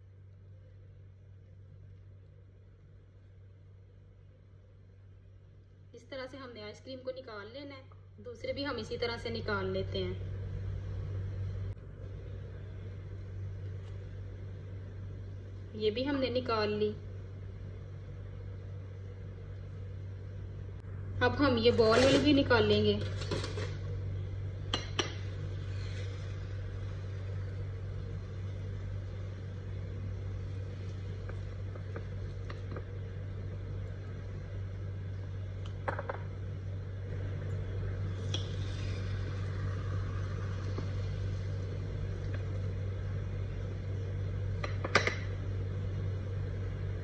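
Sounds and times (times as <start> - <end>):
low hum: 0.0 - 47.0
dishes clinking and knocking: 44.6 - 45.3.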